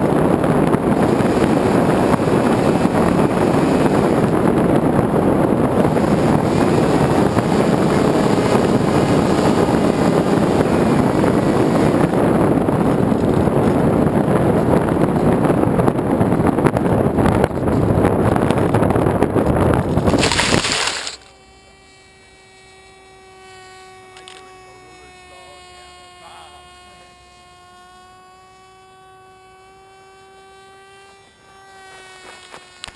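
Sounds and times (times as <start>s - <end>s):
wind rushing over camera: 0.0s - 21.2s
faint electronic hum: 0.0s - 32.9s
plane crashing into dry grass: 19.5s - 21.4s.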